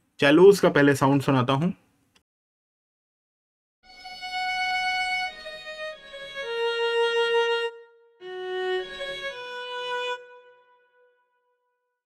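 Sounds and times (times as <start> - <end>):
bowed cello notes: 3.9 - 11.1.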